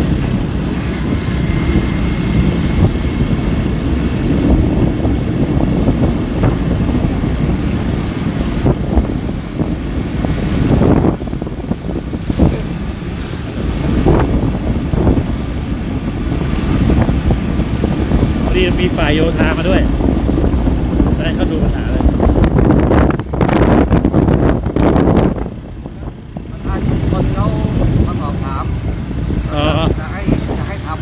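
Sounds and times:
motorcycle engine running: 0:00.0 - 0:31.0
wind rumbling on microphone: 0:00.0 - 0:31.0.

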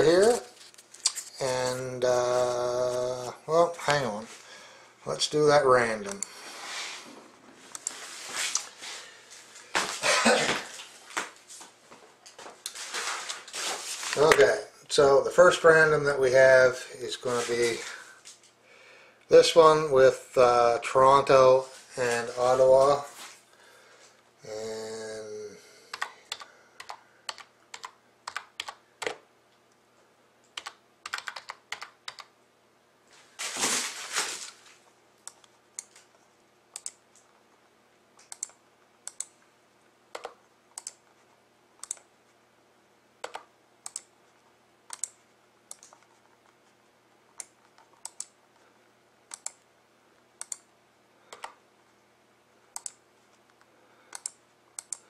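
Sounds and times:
short rustle: 0:33.1 - 0:34.8.

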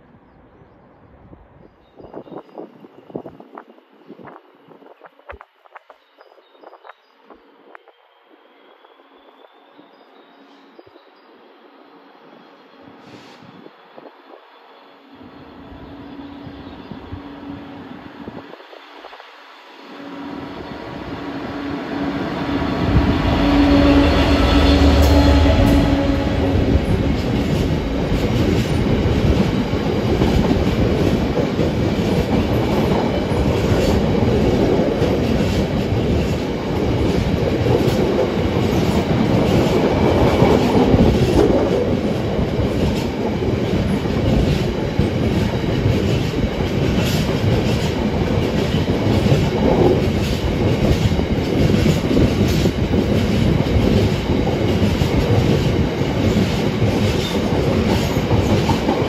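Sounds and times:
diesel locomotive engine: 0:12.7 - 0:59.0.

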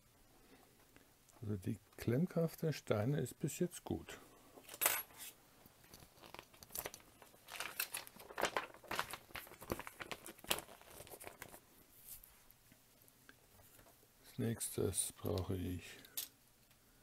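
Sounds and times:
plastic bags crinkling: 0:05.8 - 0:11.6.

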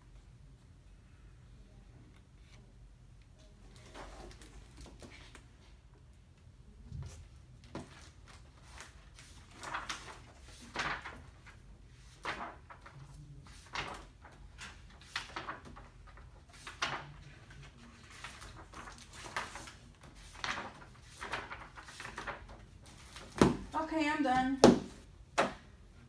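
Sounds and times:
book pages turning: 0:07.0 - 0:23.7.

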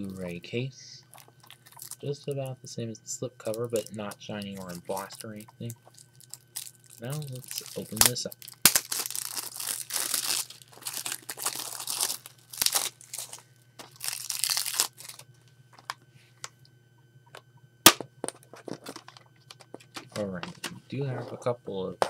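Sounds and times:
cellophane crinkling and tearing: 0:01.1 - 0:02.6, 0:03.4 - 0:15.3.

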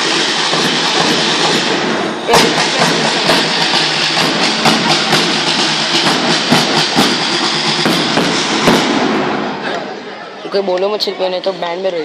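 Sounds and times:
hissing cymbal wash: 0:00.0 - 0:09.1
marching drums playing march beat: 0:00.0 - 0:09.7.

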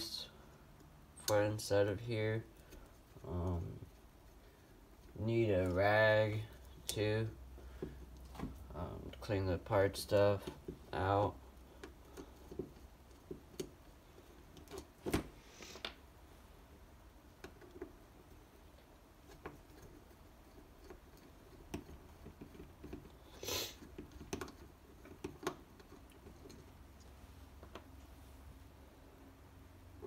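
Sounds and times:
short scrape: 0:23.4 - 0:23.8.

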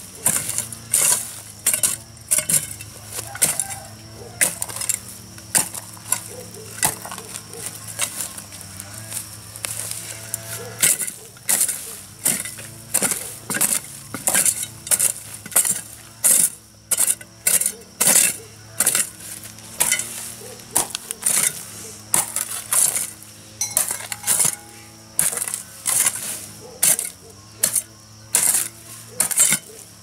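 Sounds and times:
knife scraping and cutting root: 0:09.6 - 0:30.0.

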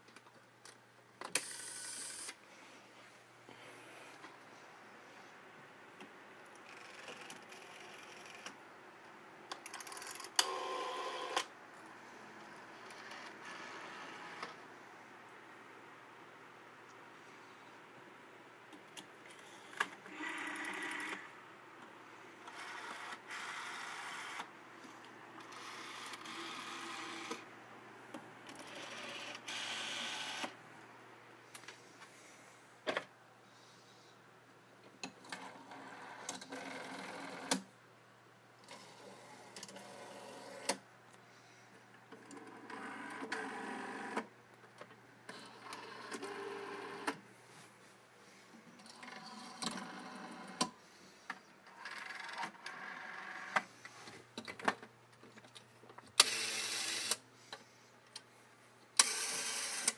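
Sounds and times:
rotary telephone dial whirring: 0:06.6 - 0:08.6, 0:09.6 - 0:11.5, 0:19.3 - 0:21.3, 0:22.4 - 0:24.5, 0:25.4 - 0:27.4, 0:28.5 - 0:30.6, 0:35.1 - 0:37.6, 0:42.2 - 0:44.3, 0:45.3 - 0:47.2, 0:48.8 - 0:50.7, 0:51.7 - 0:53.7, 0:56.2 - 0:57.2, 0:59.0 - 0:59.9.

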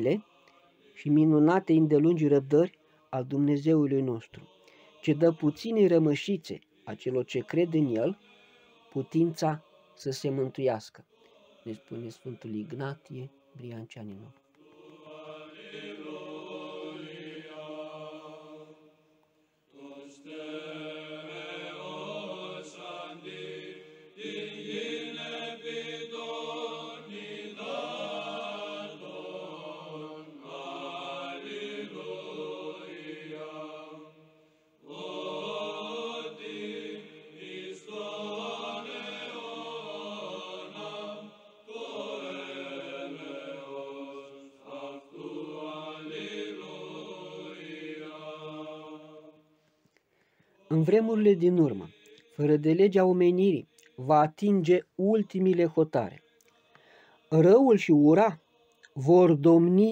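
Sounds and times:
group of voices chanting: 0:04.3 - 0:19.0, 0:19.7 - 0:49.4, 0:50.5 - 0:52.5.

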